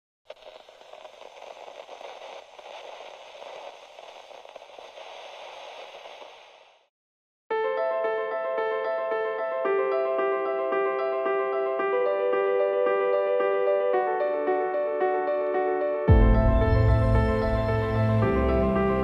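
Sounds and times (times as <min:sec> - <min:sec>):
crackling static noise: 0:00.2 - 0:06.9
piano music: 0:07.5 - 0:19.0.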